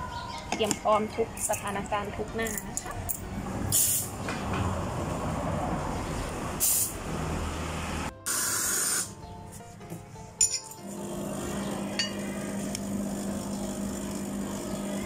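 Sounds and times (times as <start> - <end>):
steam wand hissing: 8.3 - 9.1.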